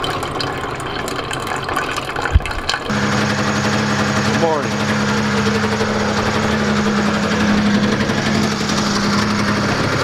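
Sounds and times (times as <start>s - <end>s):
snowmobile engine idling: 2.9s - 10.0s.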